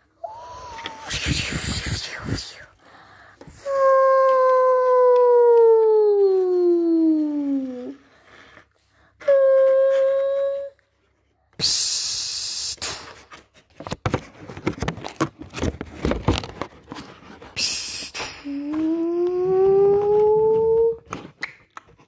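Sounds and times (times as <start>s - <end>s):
person humming steady tone: 0.2s - 1.2s, 3.7s - 8.0s, 18.4s - 21.0s
paper rustling and handling knocks: 13.3s - 17.6s.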